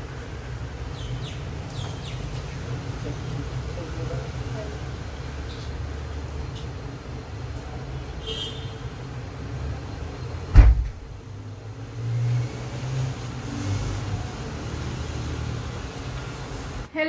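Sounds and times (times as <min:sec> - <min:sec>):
door banging shut: 0:10.5 - 0:11.2.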